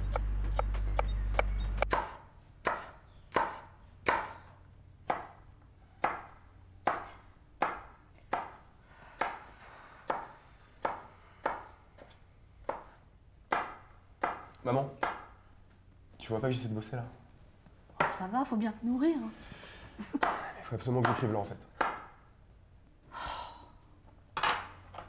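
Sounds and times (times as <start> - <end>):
knife chopping on wooden board: 0.1 - 4.5, 5.1 - 5.4, 6.0 - 8.6, 10.1 - 15.4, 21.0 - 22.1.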